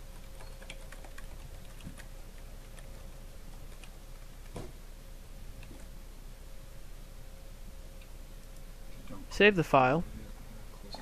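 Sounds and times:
faint steady hum: 0:00.0 - 0:11.0
computer keyboard keystrokes: 0:00.1 - 0:02.9, 0:03.6 - 0:04.6.

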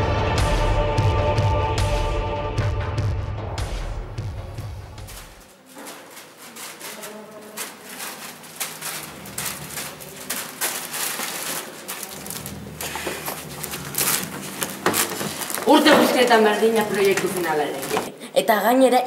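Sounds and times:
footsteps on hard floor: 0:05.0 - 0:18.2.

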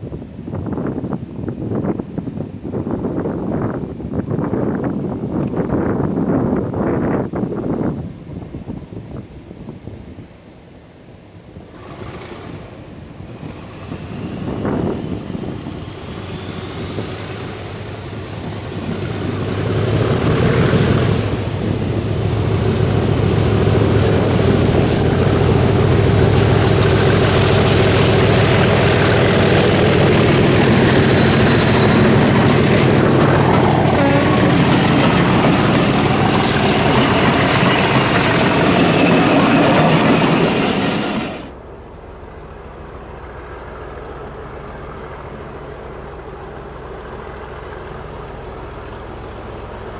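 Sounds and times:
coaches running on rails: 0:11.6 - 0:41.8
diesel locomotive engine throbbing: 0:11.7 - 0:49.9.

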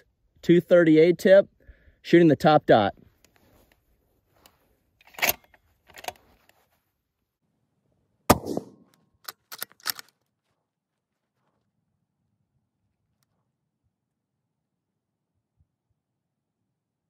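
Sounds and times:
rifle bolt clicks: 0:05.0 - 0:06.2, 0:09.2 - 0:10.2
rifle shot crack: 0:08.3 - 0:08.9.

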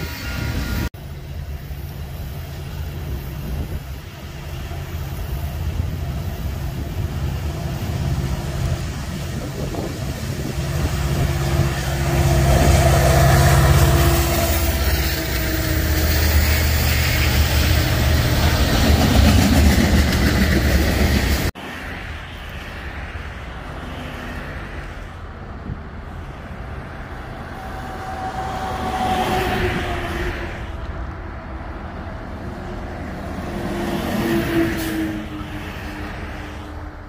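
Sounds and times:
train wheels rolling on rails: 0:00.0 - 0:23.0
diesel locomotive engine: 0:00.0 - 0:37.0.

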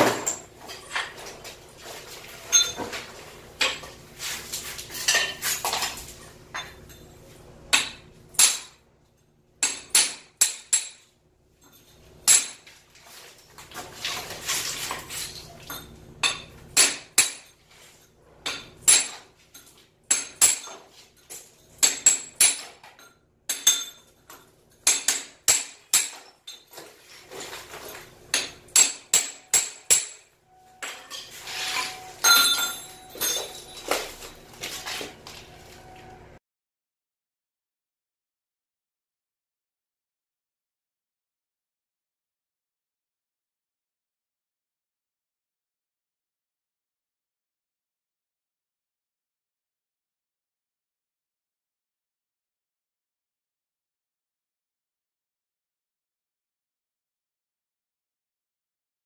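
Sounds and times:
hammer striking chisel: 0:07.7 - 0:08.8, 0:09.6 - 0:11.1, 0:12.2 - 0:12.6, 0:16.2 - 0:17.5, 0:18.4 - 0:19.3, 0:20.1 - 0:20.8, 0:21.8 - 0:24.1, 0:24.8 - 0:26.3, 0:28.3 - 0:31.2
chisel scraping tile: 0:31.0 - 0:32.1.

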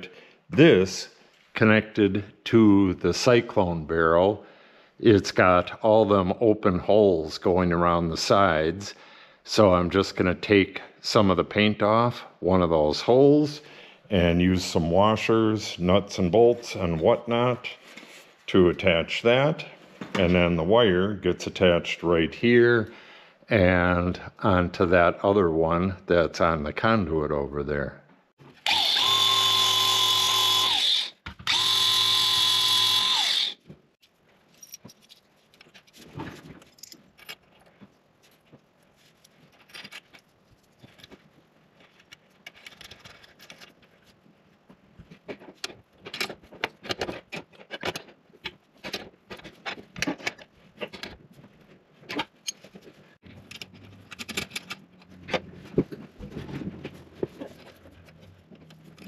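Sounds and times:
angle grinder running: 0:28.6 - 0:33.6
metallic clicks of bolts and nuts: 0:53.4 - 0:55.1.

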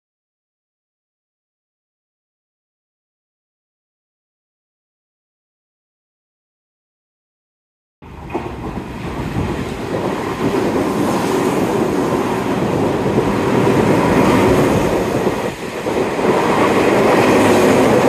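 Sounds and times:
electric train passing: 0:08.0 - 0:18.0.

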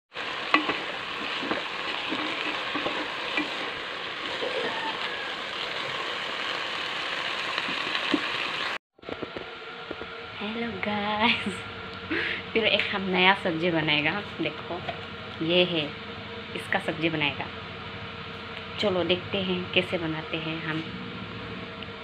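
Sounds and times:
greens sizzling in a pot: 0:00.1 - 0:08.8.

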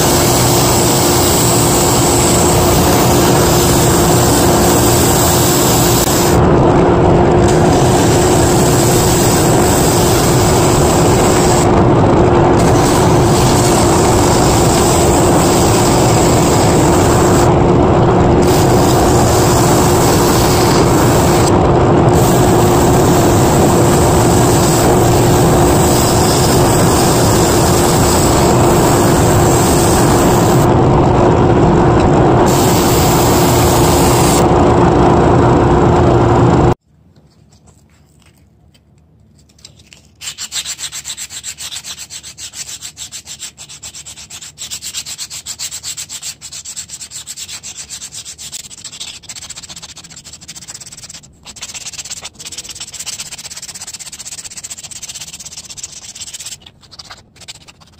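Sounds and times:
hand sanding wood: 0:40.2 - 0:57.9.

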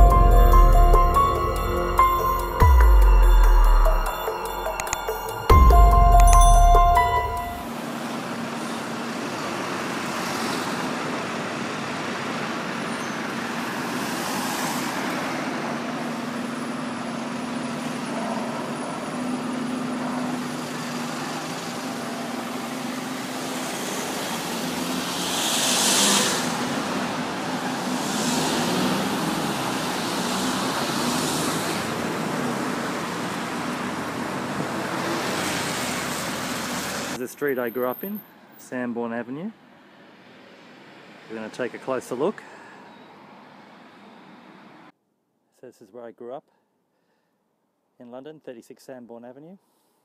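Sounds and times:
engine hum: 0:00.0 - 0:37.2
passing vehicles: 0:00.0 - 0:45.0
bus brakes hissing: 0:22.4 - 0:27.1.

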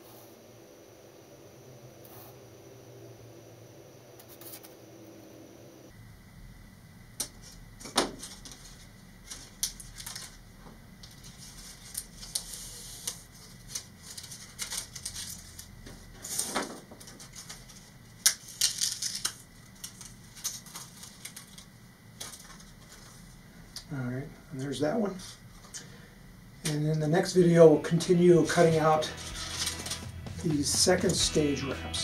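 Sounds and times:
plastic wrap crackling: 0:08.2 - 0:10.5, 0:11.1 - 0:15.8, 0:17.1 - 0:23.1.

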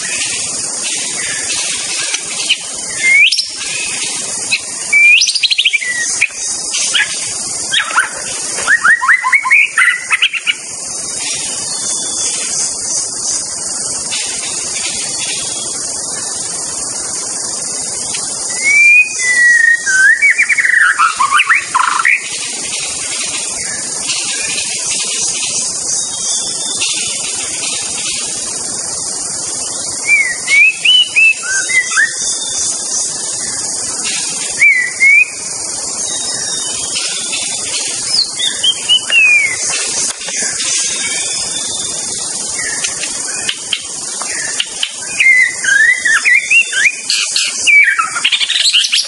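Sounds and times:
steady high hiss: 0:00.0 - 0:49.0
bird singing whistled phrases: 0:01.2 - 0:10.6, 0:18.4 - 0:22.3, 0:29.9 - 0:32.8, 0:34.5 - 0:49.0.

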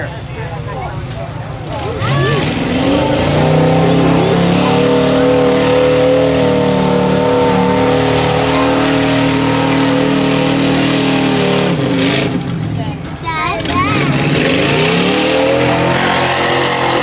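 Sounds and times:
truck engine at high revs: 0:01.0 - 0:17.0.

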